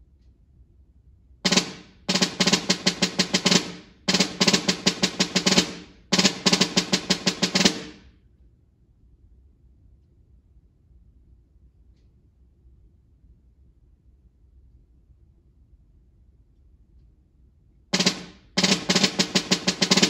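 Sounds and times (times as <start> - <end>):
snare drum rolls: 1.5 - 8.1, 18.0 - 20.0.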